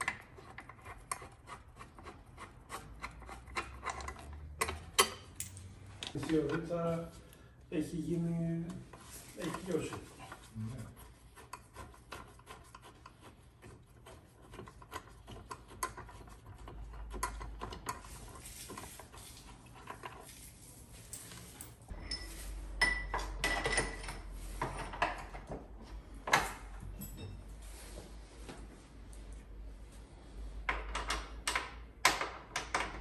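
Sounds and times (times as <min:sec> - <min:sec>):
metallic ring: 0:21.9 - 0:24.2, 0:26.9 - 0:27.5.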